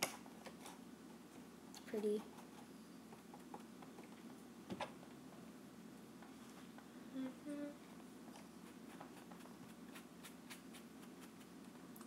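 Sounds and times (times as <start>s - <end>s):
person humming: 7.1s - 7.8s.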